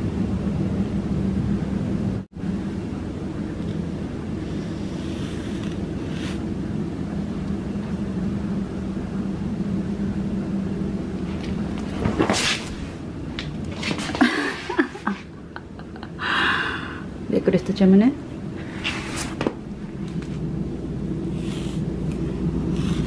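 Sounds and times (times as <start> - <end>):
low hum and rumble: 0.0 - 23.0
sharp scrape: 4.5 - 6.4
brush rasping through cat fur: 4.5 - 6.5, 21.3 - 23.0.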